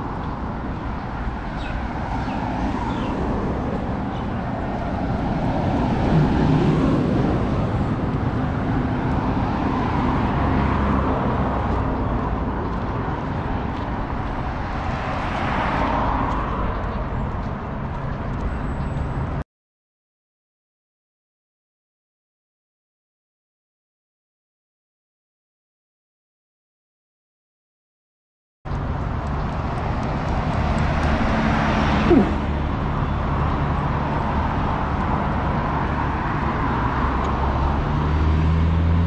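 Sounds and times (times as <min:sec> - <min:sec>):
city street traffic: 0:00.0 - 0:19.4, 0:28.7 - 0:39.0.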